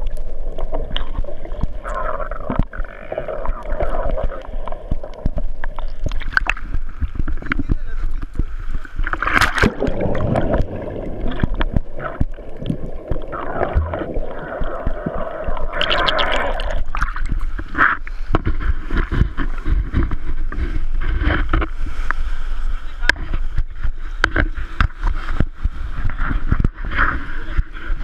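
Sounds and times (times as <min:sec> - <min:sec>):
water bubbling: 0:00.0 - 0:21.8
sea water splashing and sloshing: 0:00.0 - 0:28.0.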